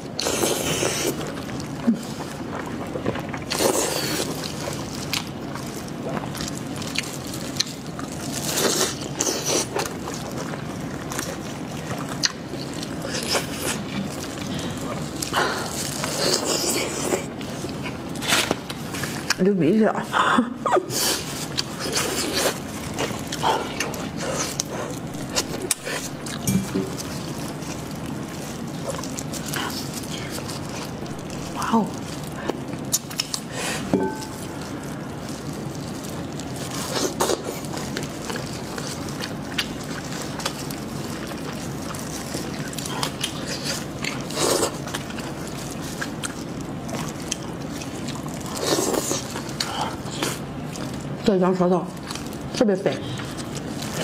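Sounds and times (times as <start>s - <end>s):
wet mouth eating sounds: 0.0s - 19.4s, 20.7s - 51.3s
plastic gloves rustling: 0.0s - 54.0s.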